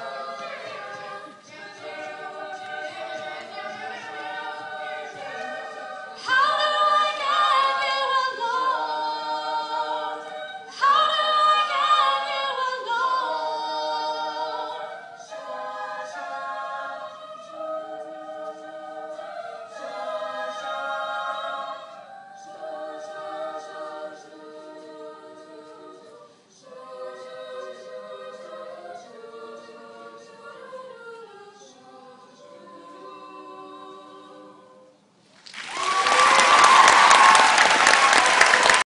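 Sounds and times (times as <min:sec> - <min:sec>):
a cappella group singing: 0:00.0 - 0:35.2
audience applause: 0:35.4 - 0:38.9.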